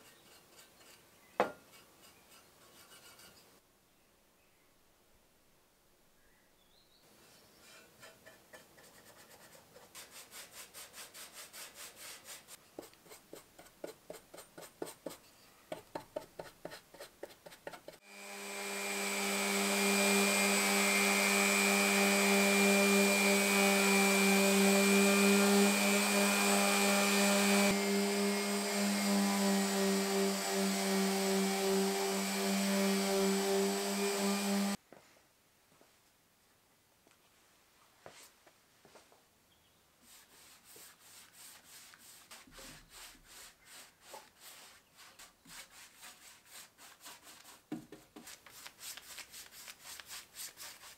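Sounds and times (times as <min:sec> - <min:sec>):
orbital sander humming: 0:18.0 - 0:34.8.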